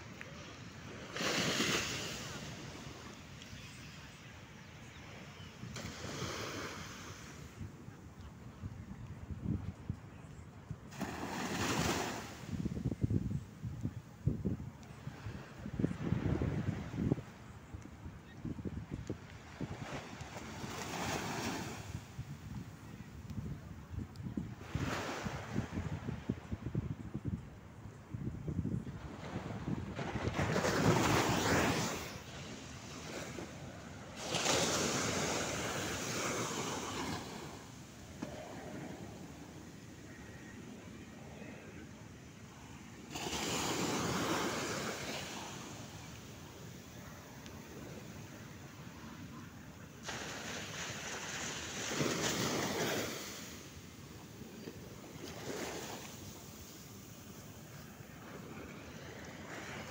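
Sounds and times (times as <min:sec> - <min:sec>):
small waves breaking on beach: 0:00.0 - 0:07.9, 0:10.9 - 0:12.9, 0:19.1 - 0:23.0, 0:28.8 - 0:59.9.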